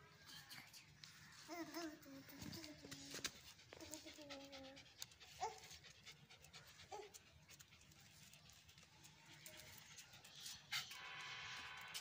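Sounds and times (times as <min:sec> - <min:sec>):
dog panting: 0:02.9 - 0:11.0.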